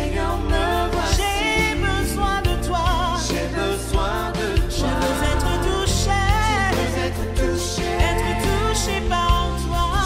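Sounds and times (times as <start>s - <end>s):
instrumental accompaniment with bass: 0.0s - 10.0s
person singing: 0.0s - 10.0s.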